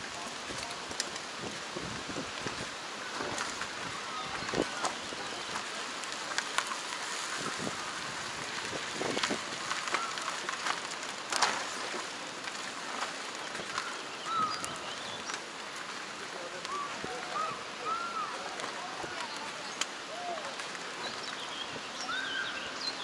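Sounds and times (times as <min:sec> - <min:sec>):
tyre crunching over gravel: 0:00.0 - 0:17.8.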